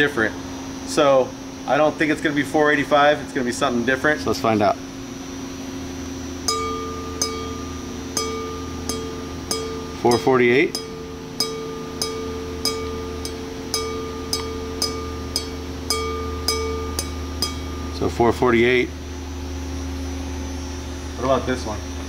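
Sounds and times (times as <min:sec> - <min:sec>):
wine glass ringing when flicked: 0:06.4 - 0:18.7.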